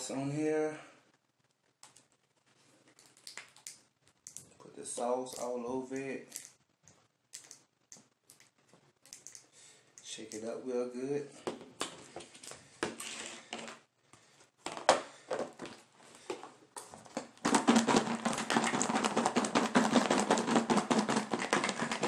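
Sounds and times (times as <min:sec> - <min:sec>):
food shaken in plastic container: 0:17.1 - 0:22.0.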